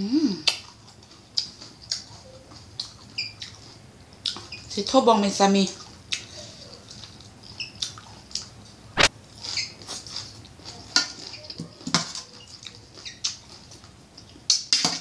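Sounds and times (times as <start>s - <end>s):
wet chewing and lip smacks: 0.4s - 4.6s, 5.8s - 11.6s.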